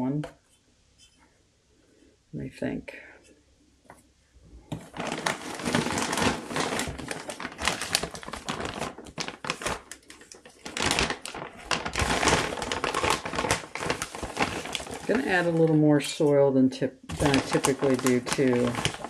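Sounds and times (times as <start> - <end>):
plastic bags crinkling: 4.7 - 16.2, 17.1 - 19.0.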